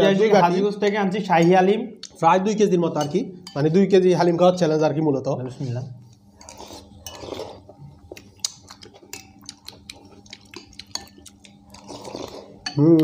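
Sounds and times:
spoons clinking on ceramic bowls: 3.0 - 3.9.

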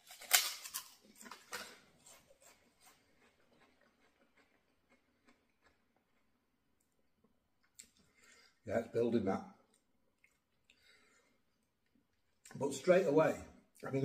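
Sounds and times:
chewing crackles: 0.1 - 6.4, 9.7 - 10.9.

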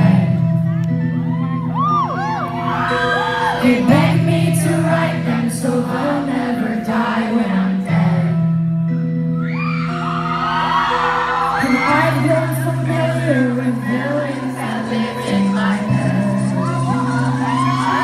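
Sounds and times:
person singing: 3.1 - 8.6, 11.6 - 18.0.

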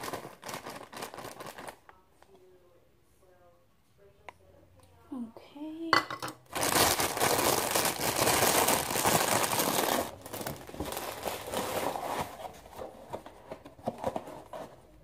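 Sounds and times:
plastic bag crinkling: 0.0 - 1.9, 6.4 - 12.7
soft rustles: 10.3 - 15.0.

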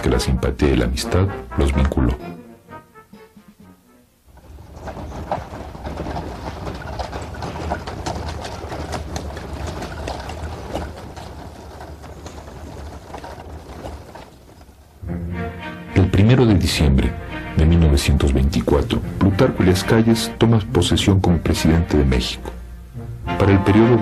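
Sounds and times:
dense clatter of clicks: 4.3 - 15.0.

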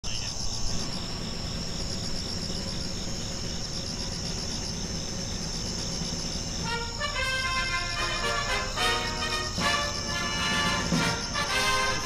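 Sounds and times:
insects chirring: 0.0 - 12.0
low background rumble: 0.1 - 12.0.

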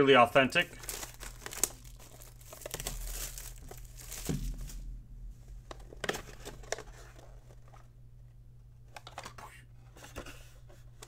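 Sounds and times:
plastic wrap crinkling: 0.5 - 4.9.

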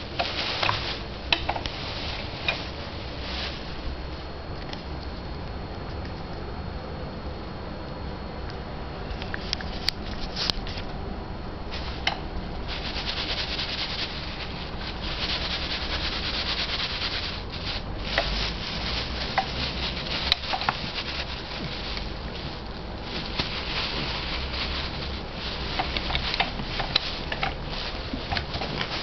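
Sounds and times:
tissue paper rustling: 0.0 - 4.0, 11.7 - 29.0.

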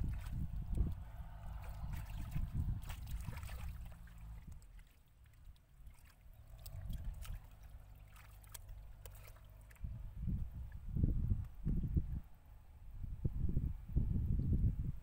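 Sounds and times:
hands splashing in muddy water: 0.0 - 9.9
wet squelches in mud: 0.0 - 9.9.

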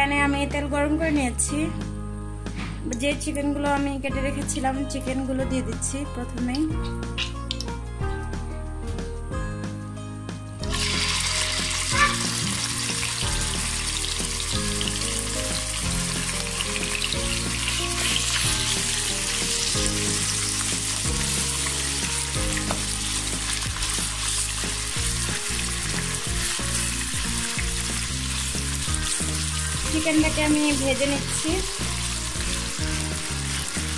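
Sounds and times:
background music: 0.0 - 33.9
chicken sizzling in oil: 10.6 - 33.9.

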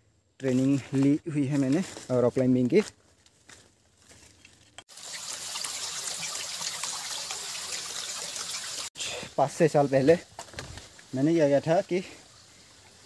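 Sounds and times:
stream splashing over rocks: 4.9 - 8.9.

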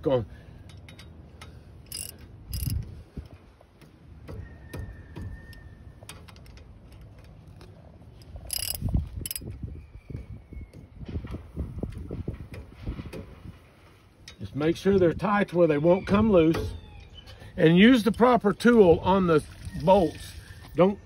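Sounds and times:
metal clacks: 0.7 - 2.8, 8.5 - 9.5
ratchet wrench clicking: 0.7 - 2.8, 8.4 - 9.4.

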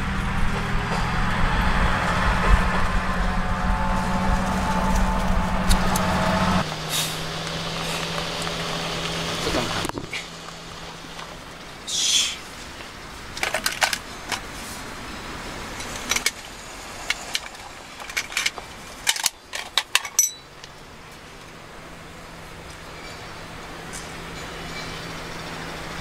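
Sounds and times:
metallic clicks and clinks: 17.0 - 20.8.

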